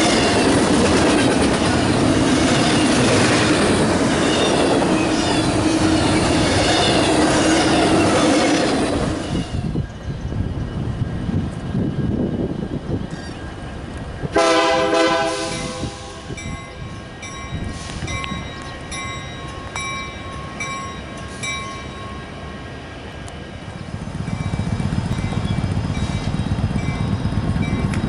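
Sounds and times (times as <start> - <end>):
low train rumble: 0.0 - 28.0
diesel locomotive horn blast: 14.3 - 16.4.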